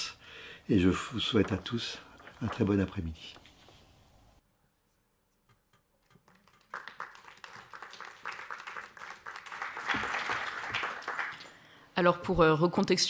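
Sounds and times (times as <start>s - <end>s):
audience applauding: 6.3s - 11.6s.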